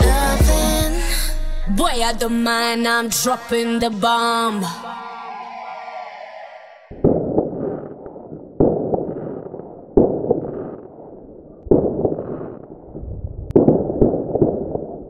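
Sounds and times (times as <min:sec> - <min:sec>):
crackling fireworks pops: 0:06.9 - 0:12.9, 0:13.5 - 0:15.0
fireworks bangs: 0:06.9 - 0:12.9.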